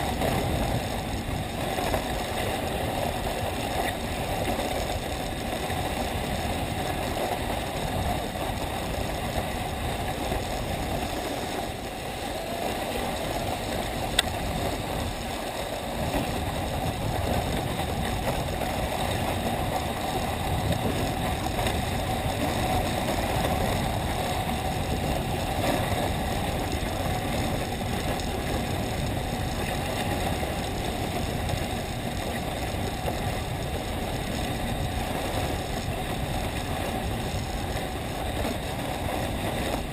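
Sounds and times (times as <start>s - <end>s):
sled sliding over snow: 0.0s - 39.9s.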